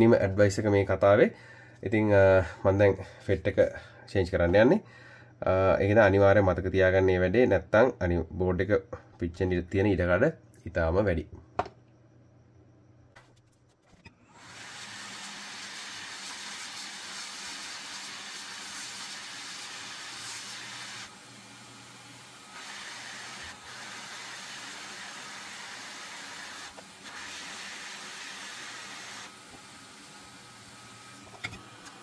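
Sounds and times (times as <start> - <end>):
hot-air station hissing: 14.2 - 32.0.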